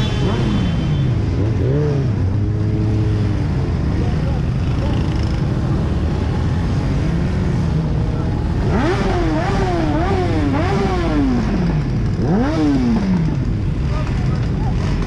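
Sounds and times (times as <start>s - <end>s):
vehicle noise: 0.0s - 15.0s
engine revving: 8.5s - 15.0s.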